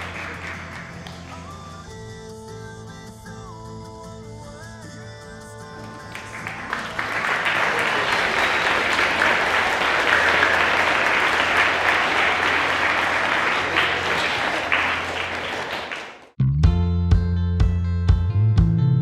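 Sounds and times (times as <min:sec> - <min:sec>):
children applauding: 0:00.0 - 0:01.7, 0:05.8 - 0:16.4.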